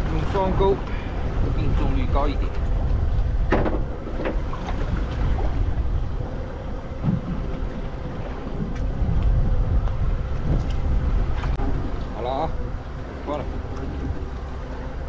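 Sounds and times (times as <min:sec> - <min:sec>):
faint boat engine hum: 0:00.0 - 0:15.0
wind buffeting microphone: 0:00.0 - 0:15.0.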